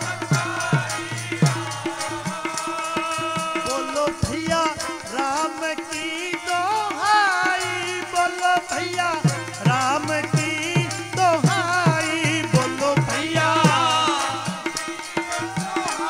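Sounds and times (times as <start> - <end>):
harmonium steady tones: 0.0 - 16.0
tabla drumming: 0.0 - 16.0.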